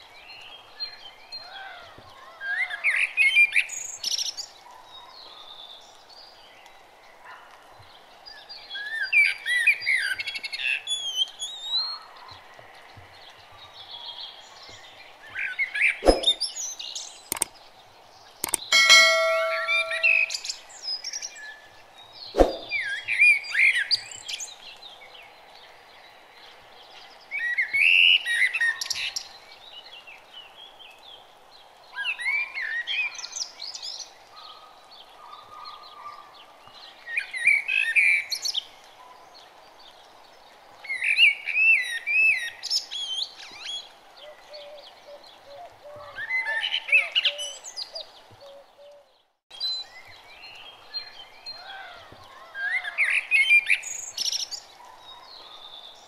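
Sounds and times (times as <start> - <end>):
faint steady background noise: 0.0 - 56.0
birds chirping: 12.3 - 20.8
sharp click: 16.0 - 16.4, 17.3 - 17.5, 18.4 - 20.4, 22.4 - 22.7.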